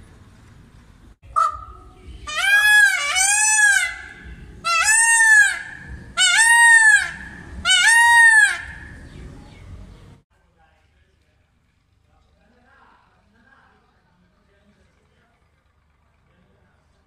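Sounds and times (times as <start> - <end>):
peacock calling: 1.2 - 9.7.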